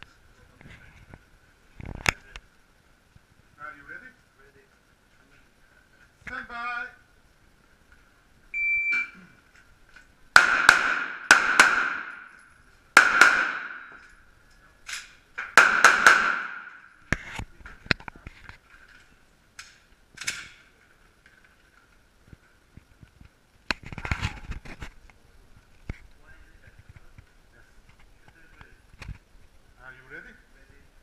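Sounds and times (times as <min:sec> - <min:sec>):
faint cracks and clicks: 0:01.8 - 0:02.6, 0:17.1 - 0:29.6
shot timer beep: 0:08.6 - 0:09.2
loud knock: 0:10.4 - 0:12.3, 0:13.0 - 0:14.0, 0:15.5 - 0:16.8
handgun shots echoing indoors: 0:10.4 - 0:12.4, 0:13.0 - 0:14.1, 0:15.0 - 0:16.9.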